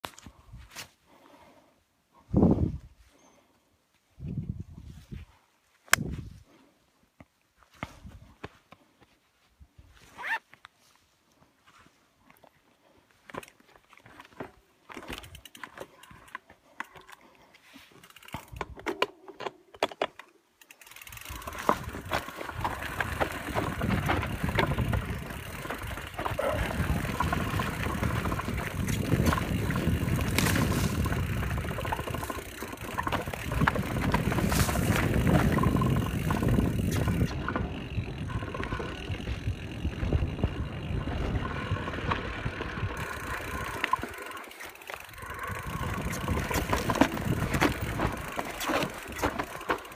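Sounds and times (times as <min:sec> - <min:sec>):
bike rattling and knocking: 0:18.0 - 0:49.9
mountain bike tyre noise on rocks: 0:20.6 - 0:49.9.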